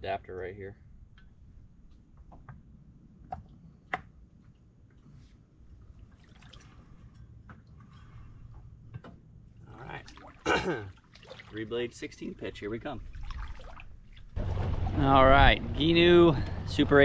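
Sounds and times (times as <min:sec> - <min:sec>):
water lapping and dripping: 0:04.5 - 0:16.7.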